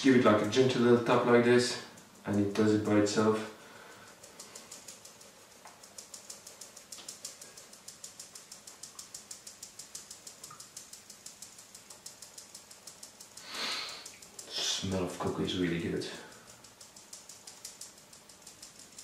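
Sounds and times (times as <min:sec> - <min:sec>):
person sniffing: 0:13.4 - 0:14.8.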